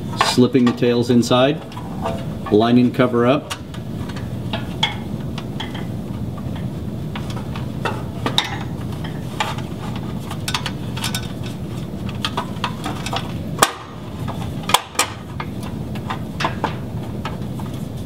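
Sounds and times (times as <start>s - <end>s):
steady low hum: 0.0s - 18.0s
metal cover clicks and scrapes: 3.4s - 17.8s.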